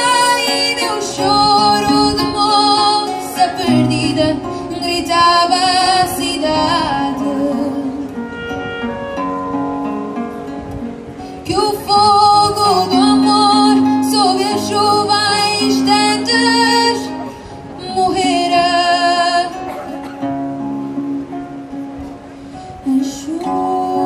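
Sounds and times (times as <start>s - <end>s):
woman singing with vibrato: 0.0s - 8.5s, 11.3s - 21.9s, 22.6s - 24.0s
classical guitar: 0.0s - 24.0s
clarinet: 8.0s - 10.8s.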